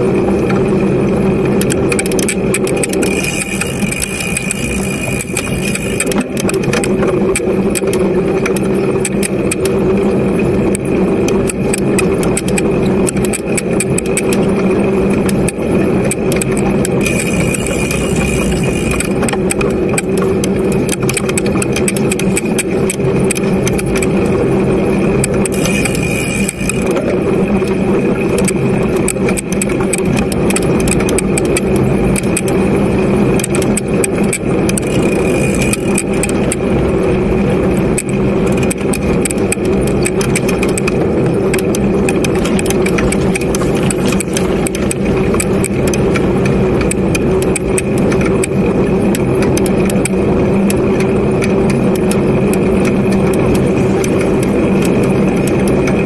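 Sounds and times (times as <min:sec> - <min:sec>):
bike rumbling over dirt trail: 0:01.8 - 0:07.7, 0:16.8 - 0:19.5, 0:25.4 - 0:27.3, 0:34.7 - 0:36.5.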